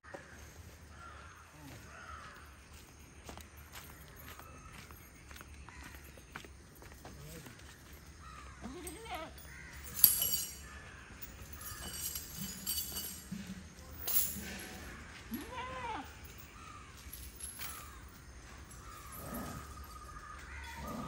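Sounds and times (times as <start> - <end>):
bird calls: 0.1 - 21.0
metal chain clinking: 3.6 - 21.0.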